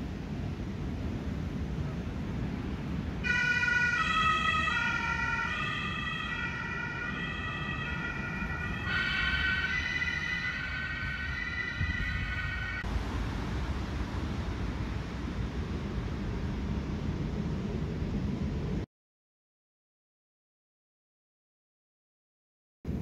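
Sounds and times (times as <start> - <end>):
low background rumble: 0.0 - 18.9
emergency siren wailing: 3.2 - 13.6.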